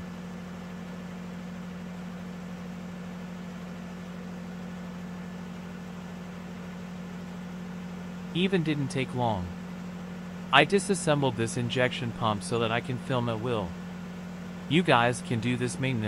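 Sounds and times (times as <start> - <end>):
low machine hum: 0.0 - 16.0
constant hiss: 8.1 - 16.0.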